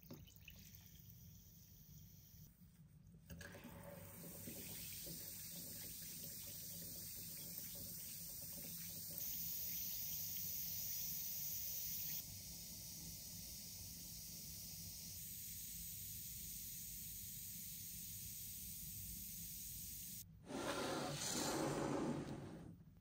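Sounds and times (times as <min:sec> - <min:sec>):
bath fizzer fizzing in water: 0:03.4 - 0:18.6.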